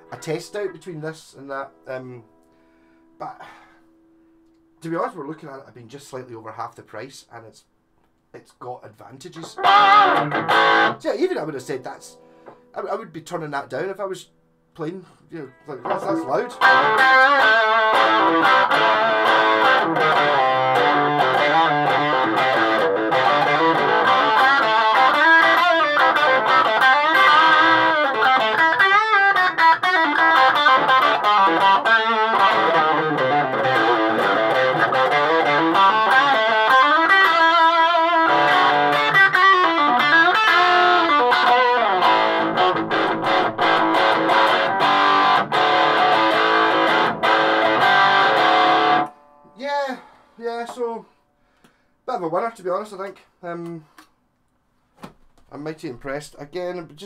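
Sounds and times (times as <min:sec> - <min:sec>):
electric guitar lead playing: 0:09.4 - 0:12.7, 0:15.4 - 0:49.6.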